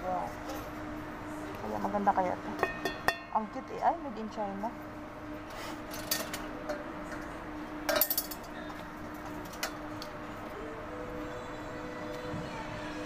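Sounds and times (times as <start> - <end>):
metal cookware clanking: 2.6 - 3.5, 5.9 - 8.7.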